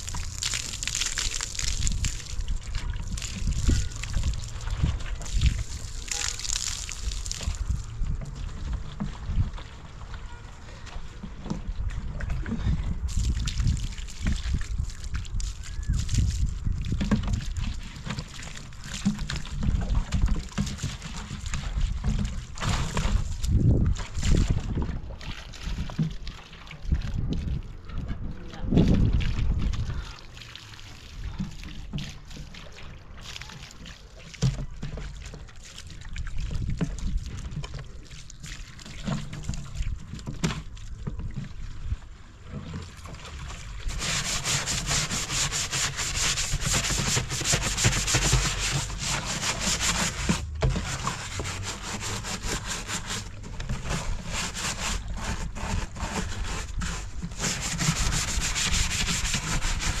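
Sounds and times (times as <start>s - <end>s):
rough rubbing and scraping: 17.0s - 24.8s, 43.8s - 60.0s.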